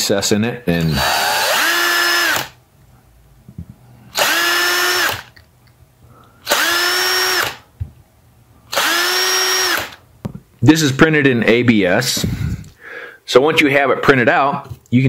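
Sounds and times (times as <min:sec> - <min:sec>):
power drill motor whine: 0:00.9 - 0:02.6, 0:04.1 - 0:05.3, 0:06.4 - 0:07.6, 0:08.7 - 0:10.0.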